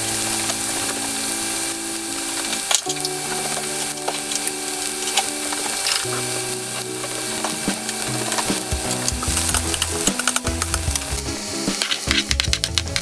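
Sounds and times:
background music: 0.0s - 13.0s
onions sizzling in hot oil: 0.0s - 13.0s.

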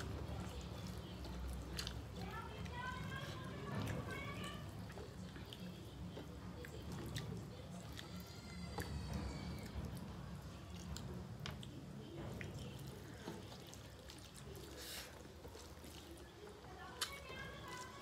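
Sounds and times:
person chewing: 0.0s - 2.2s, 12.4s - 18.0s
fingers mixing rice on steel plates: 10.8s - 18.0s.

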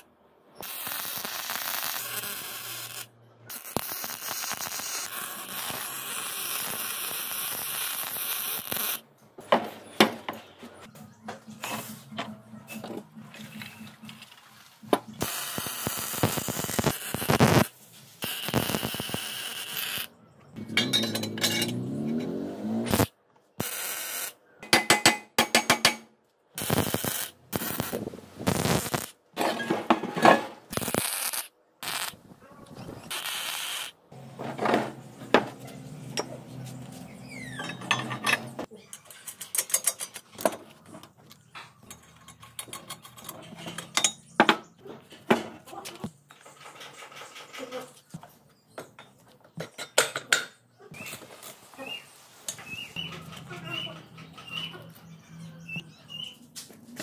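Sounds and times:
welder crackling: 0.0s - 9.1s, 14.8s - 20.1s, 22.6s - 24.4s, 26.6s - 29.2s, 30.6s - 34.3s.

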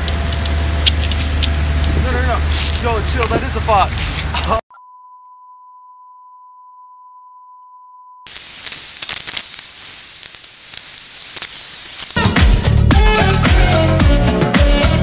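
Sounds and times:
crackly hiss: 8.3s - 12.2s.

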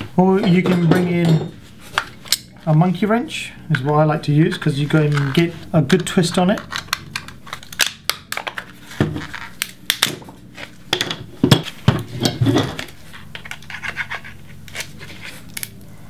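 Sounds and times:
plastic case cracking and snapping: 5.1s - 10.4s.

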